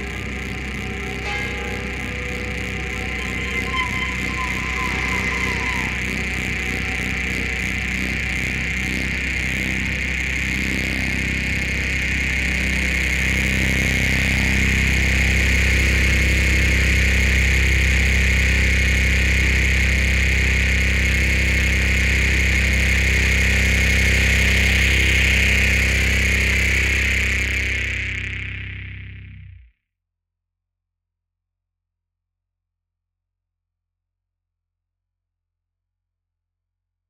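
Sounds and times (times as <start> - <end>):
high hiss-like drone: 0.0 - 29.1
low hum drone: 0.0 - 29.7.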